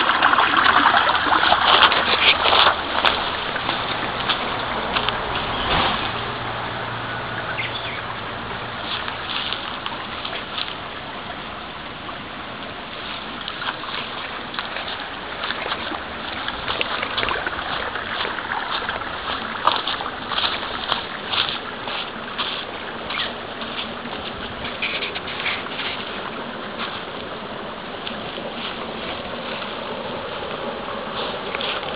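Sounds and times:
water flowing through sluice gates: 0:00.0 - 0:31.9.

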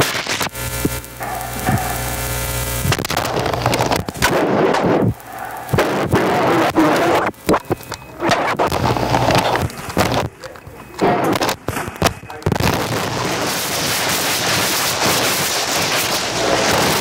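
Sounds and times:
humming drone: 0:00.0 - 0:13.5
sharp crackles and knocks: 0:00.0 - 0:17.0.

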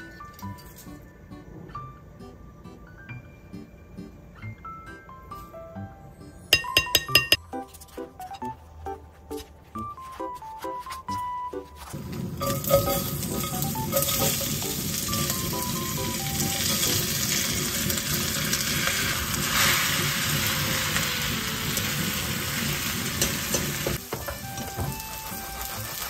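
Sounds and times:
batter sizzling in frying pan: 0:11.8 - 0:26.0.

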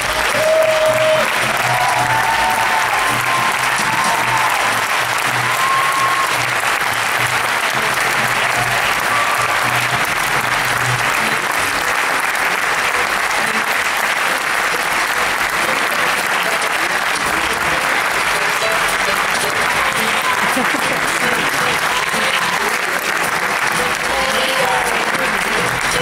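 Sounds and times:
audience applauding: 0:00.0 - 0:26.0.

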